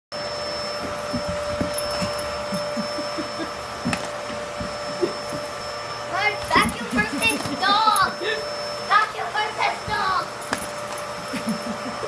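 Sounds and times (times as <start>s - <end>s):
vacuum cleaner whining: 0.2s - 12.0s.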